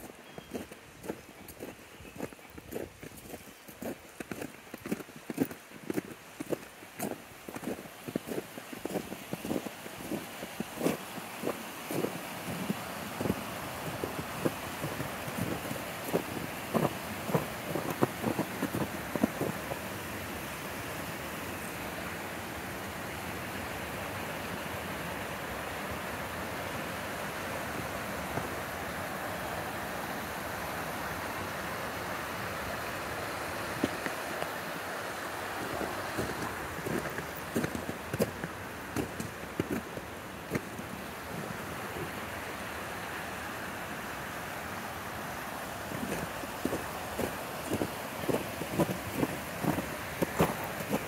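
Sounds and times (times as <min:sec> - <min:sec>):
footstep crunching in snow: 0:00.0 - 0:19.9, 0:35.6 - 0:40.8, 0:46.0 - 0:51.0
brook water rushing: 0:00.0 - 0:51.0.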